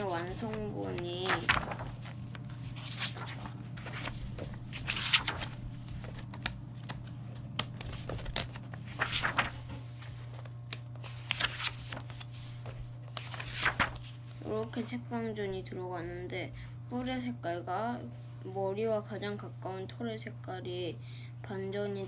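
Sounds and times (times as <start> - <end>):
steady low hum: 0.0 - 22.0
book pages turning: 0.1 - 14.6.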